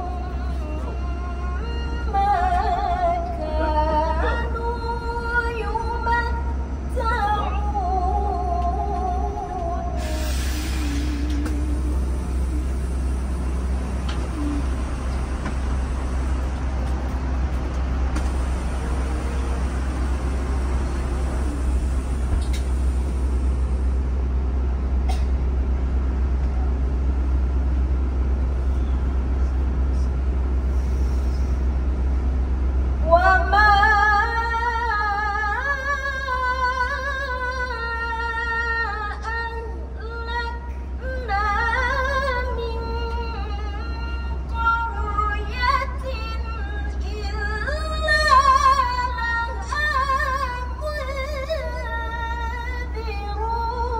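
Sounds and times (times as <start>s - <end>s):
woman reciting into a microphone: 0.0s - 10.1s, 33.1s - 53.9s
low rumble inside a bus: 0.0s - 53.9s.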